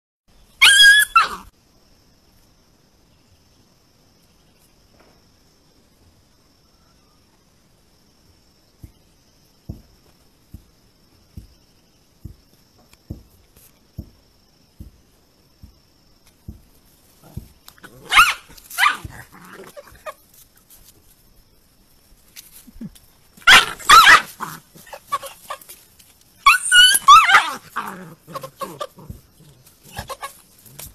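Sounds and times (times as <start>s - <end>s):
faint insect trill: 0.3s - 30.9s
puppy yelping: 0.6s - 1.5s, 17.3s - 20.2s, 23.4s - 25.6s, 26.4s - 29.2s, 29.8s - 30.4s.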